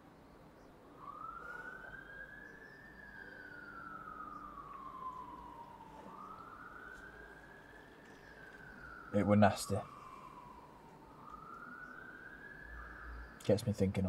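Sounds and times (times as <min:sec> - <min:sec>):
emergency siren wailing: 0:00.0 - 0:14.0.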